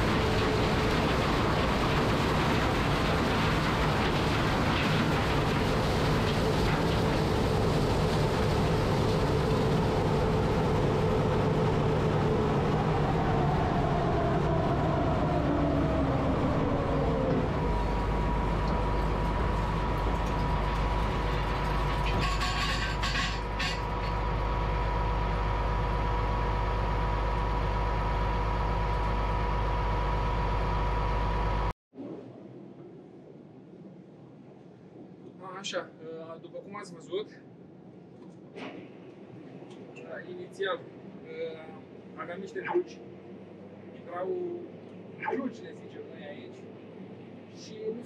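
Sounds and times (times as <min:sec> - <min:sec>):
combine harvester drone: 0:00.0 - 0:31.7.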